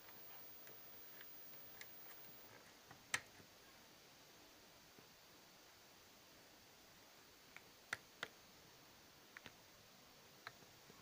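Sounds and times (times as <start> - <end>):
faint ticks and clicks of handling: 0.0 - 3.5, 9.3 - 9.6.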